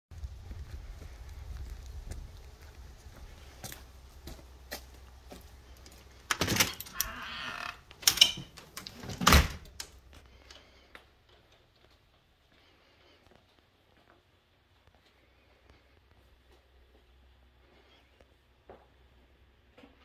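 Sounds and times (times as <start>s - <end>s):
footsteps: 0.2s - 7.7s
door creaking: 6.3s - 10.0s.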